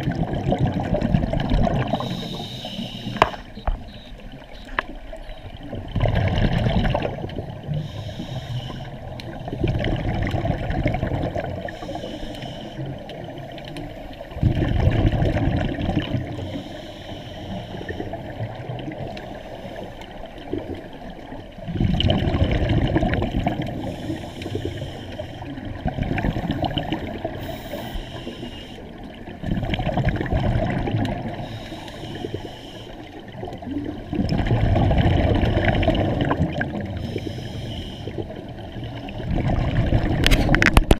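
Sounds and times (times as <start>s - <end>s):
scuba exhalation bubbles: 0.0s - 8.0s, 9.3s - 11.9s, 14.3s - 16.5s, 20.5s - 24.0s, 25.5s - 27.8s, 29.2s - 31.5s, 33.4s - 37.2s, 38.0s - 40.9s
steady underwater hiss: 0.0s - 40.8s.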